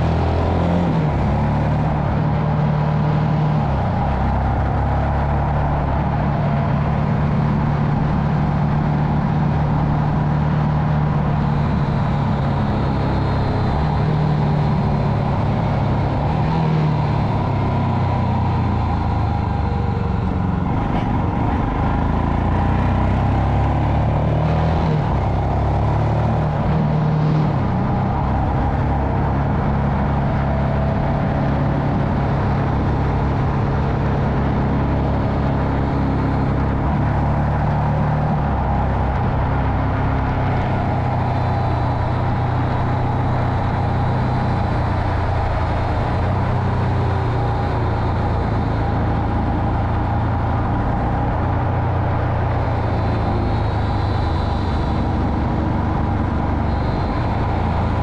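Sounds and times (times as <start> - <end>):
wind and road noise: 0.0 - 58.0
motorcycle engine running: 40.9 - 58.0.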